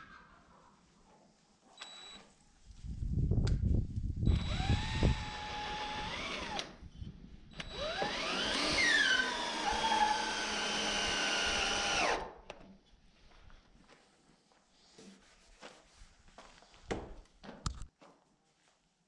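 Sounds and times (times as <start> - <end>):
power drill boring into wood: 4.3 - 6.8, 7.6 - 12.3.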